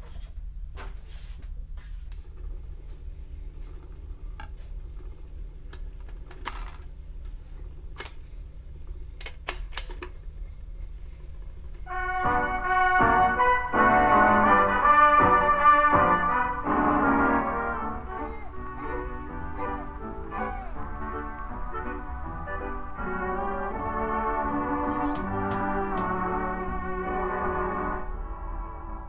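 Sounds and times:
low steady hum: 0.0s - 29.0s
music from a record: 11.9s - 18.1s, 18.8s - 29.0s.

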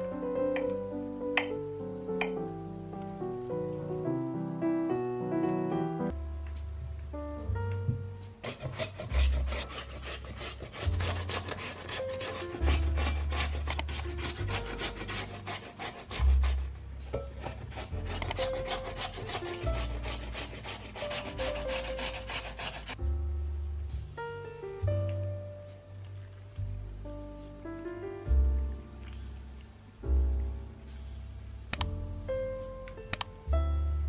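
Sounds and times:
background music: 0.0s - 34.0s
potato rasping on grater: 8.4s - 23.0s.

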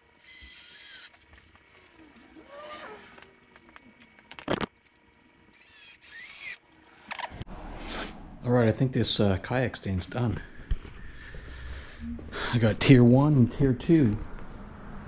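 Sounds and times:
cordless drill driving screws: 0.2s - 1.2s, 5.6s - 6.6s.

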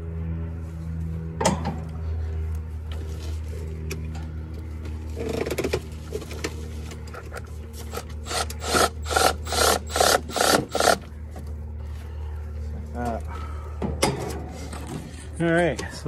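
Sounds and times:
steady low hum: 0.0s - 16.0s
cordless driver bursts: 8.2s - 11.0s.

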